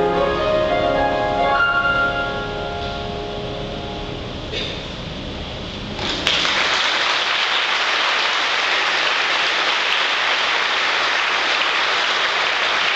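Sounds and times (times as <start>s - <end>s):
audience applause: 6.1s - 12.9s.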